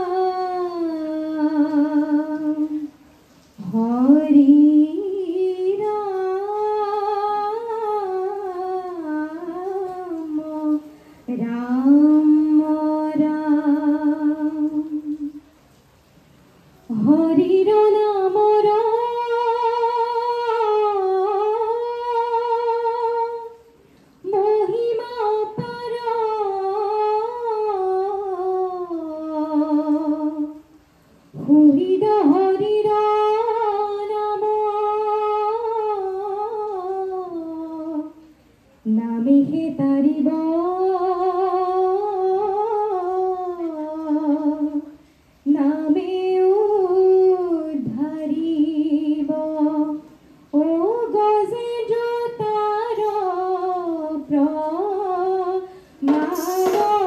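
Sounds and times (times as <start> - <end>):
woman singing unaccompanied: 0.0 - 15.5, 16.9 - 30.7, 31.3 - 57.0.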